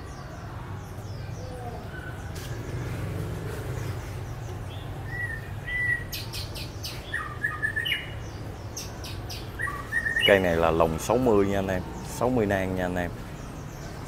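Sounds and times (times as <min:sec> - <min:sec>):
songbirds chirping: 0:00.0 - 0:14.0.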